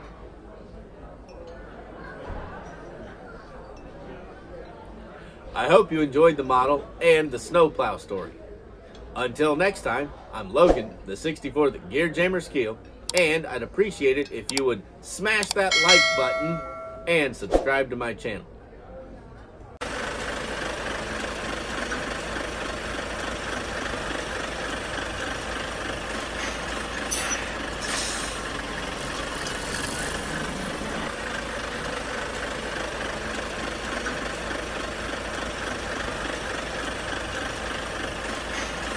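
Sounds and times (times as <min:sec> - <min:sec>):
heavy vehicle engine running: 0:19.8 - 0:38.9
air hissing: 0:26.4 - 0:28.6.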